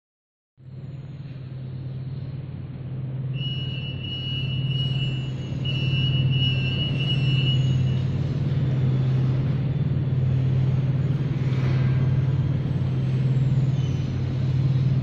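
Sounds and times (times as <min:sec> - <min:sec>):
low hum: 0:00.6 - 0:15.0
turnstile buzzer beeping: 0:03.4 - 0:08.2.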